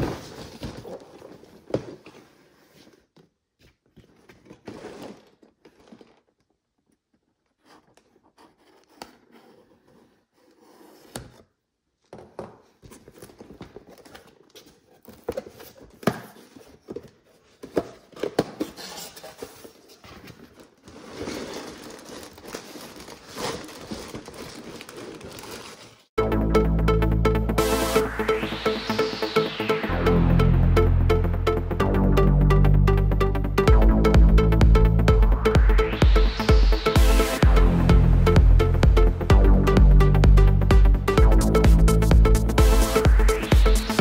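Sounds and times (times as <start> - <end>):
cardboard tearing: 18.6 - 26.1
plastic bags crinkling: 20.4 - 26.1.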